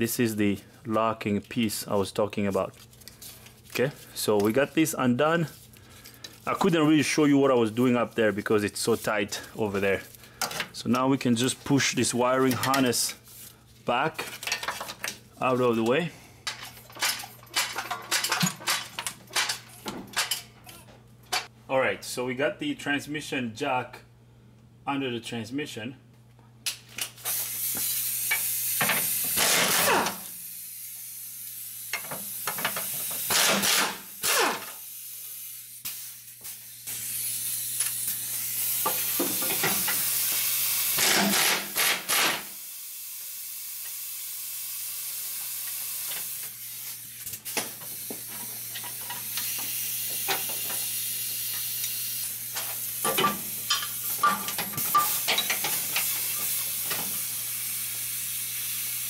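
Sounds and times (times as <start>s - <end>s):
steady hiss and hum: 0.0s - 59.0s
power tool bursts: 27.3s - 31.2s, 31.9s - 59.0s.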